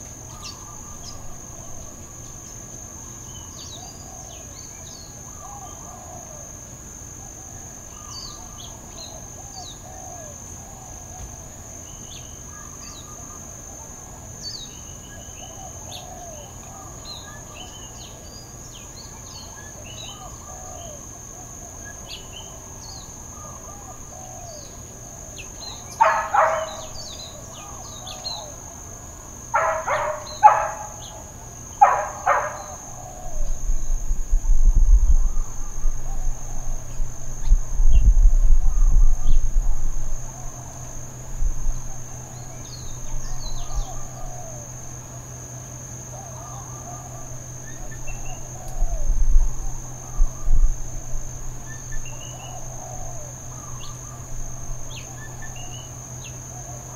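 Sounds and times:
insects buzzing: 0:00.0 - 0:56.9
bird chirps: 0:00.3 - 0:02.6, 0:42.3 - 0:44.5
dogs barking: 0:26.0 - 0:27.1, 0:29.5 - 0:32.9.

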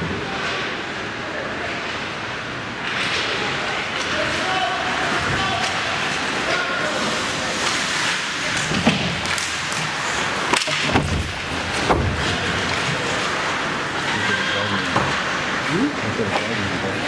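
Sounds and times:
ice rink background noise: 0:00.0 - 0:17.0
puck and sticks thudding on boards: 0:07.6 - 0:13.5.

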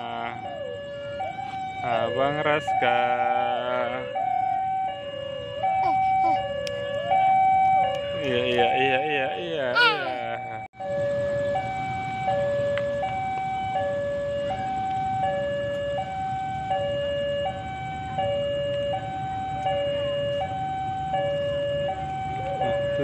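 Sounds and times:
two-tone warning alarm: 0:00.0 - 0:09.4, 0:10.1 - 0:23.0.

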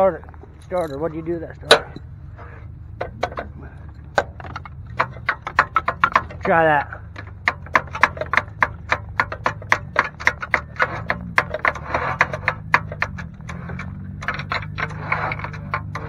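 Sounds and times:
starter motor rapid clicking: 0:04.1 - 0:16.0.

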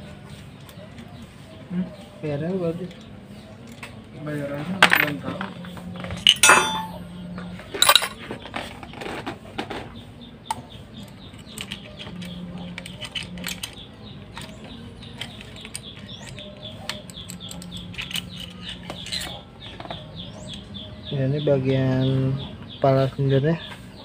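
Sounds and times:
metallic clicks and clinks: 0:06.2 - 0:07.1, 0:07.8 - 0:08.2, 0:11.0 - 0:19.3.

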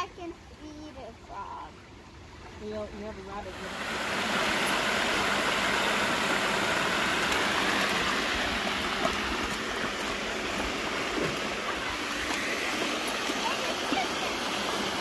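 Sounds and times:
water rushing over rocks: 0:02.3 - 0:15.0.

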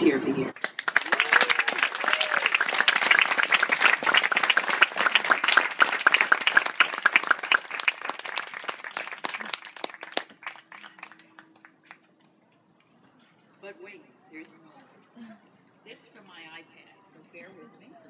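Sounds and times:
crowd clapping: 0:00.5 - 0:12.4.

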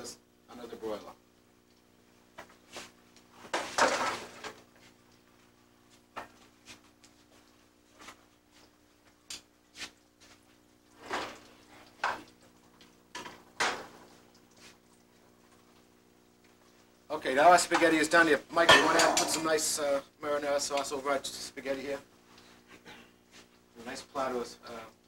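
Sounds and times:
faint steady hum: 0:00.0 - 0:25.0
metal pans and plates clattering: 0:03.5 - 0:04.6, 0:18.6 - 0:19.5.

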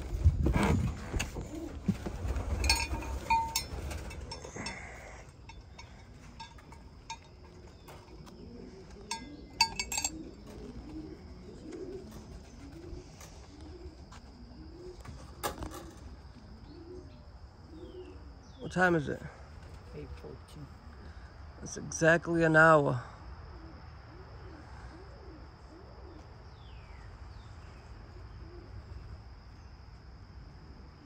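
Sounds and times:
pigeons cooing: 0:00.0 - 0:21.4, 0:23.2 - 0:31.0
clattering and clinking of gear: 0:00.4 - 0:08.3, 0:08.9 - 0:10.7.

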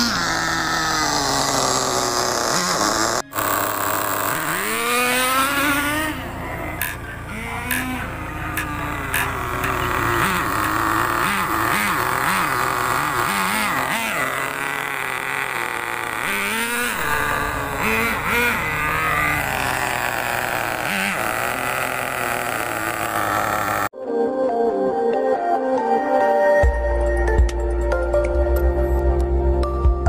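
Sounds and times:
rc truck engine revving: 0:00.0 - 0:23.9.

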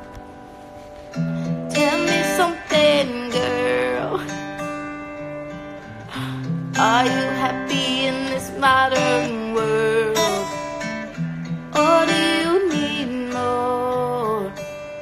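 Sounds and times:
acoustic guitar strumming chords: 0:00.0 - 0:15.0
person singing slow melody: 0:01.3 - 0:04.6, 0:05.9 - 0:10.9, 0:11.7 - 0:15.0.

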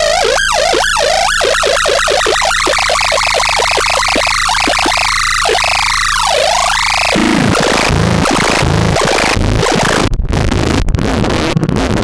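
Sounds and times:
noisy electronic synthesizer music: 0:00.0 - 0:10.1.

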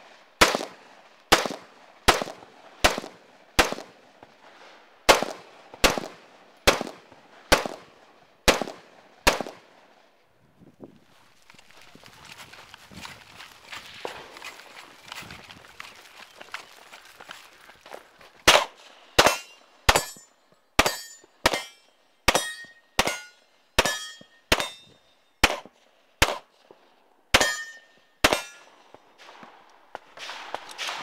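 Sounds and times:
pistol shots: 0:00.4 - 0:04.0, 0:05.1 - 0:09.8, 0:18.5 - 0:20.2, 0:20.8 - 0:26.5, 0:27.3 - 0:31.0
metallic ring: 0:19.4 - 0:25.4, 0:27.4 - 0:28.7.

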